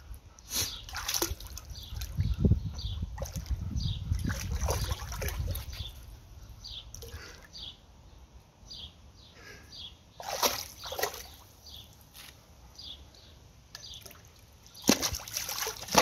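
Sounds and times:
dog splashing in pool water: 0.8 - 2.2, 4.1 - 6.0, 10.2 - 11.8, 14.0 - 16.0.

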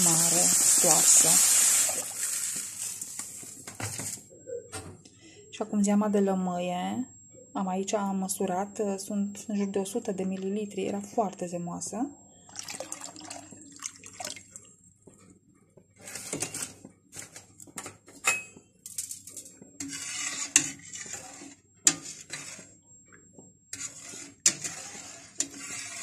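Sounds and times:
liquid pouring into metal pot: 12.5 - 14.6
spatula stirring and knocking pot: 19.5 - 22.7, 23.4 - 26.0.

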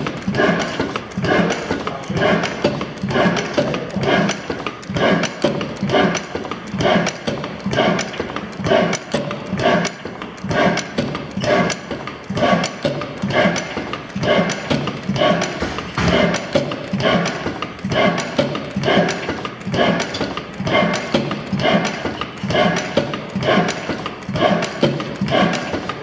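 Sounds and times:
stationary oil engine running: 0.0 - 26.0
valve gear clattering: 0.0 - 26.0.

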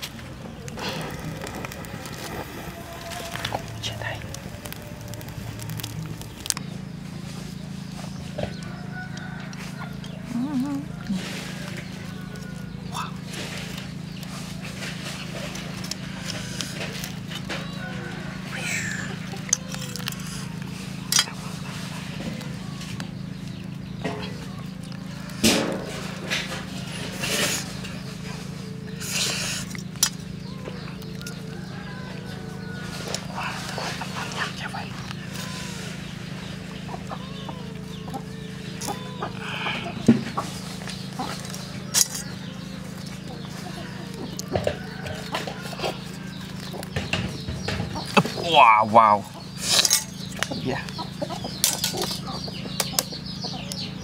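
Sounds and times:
grilled fish tearing and crackling: 0.0 - 6.7, 11.6 - 28.0, 29.0 - 36.3, 37.7 - 47.0
chickens clucking: 0.0 - 54.0
steady low hum: 0.0 - 54.0.

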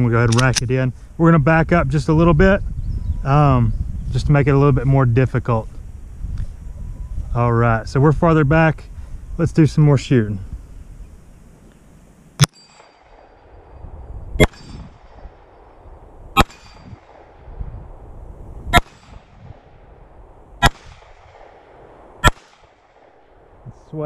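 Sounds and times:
bullets ringing on steel target: 12.4 - 13.6, 14.4 - 15.2, 16.4 - 17.2
pistol shots: 14.4 - 15.8, 16.4 - 17.6, 18.7 - 19.9, 20.6 - 23.6.

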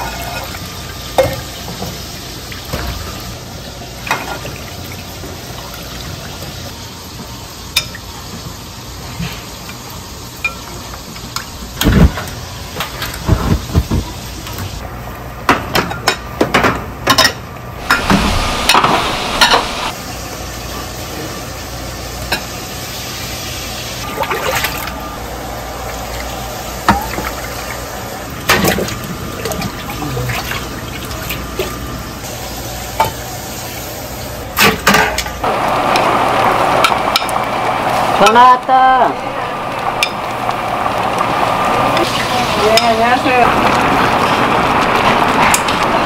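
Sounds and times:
steady kitchen hiss: 0.0 - 46.0
metal pots and utensils clattering: 34.6 - 35.4.

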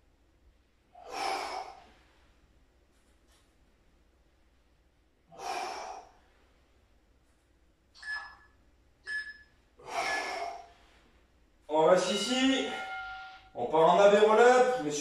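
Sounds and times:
man exhaling forcefully: 1.0 - 2.0, 5.3 - 6.2, 9.8 - 10.8.

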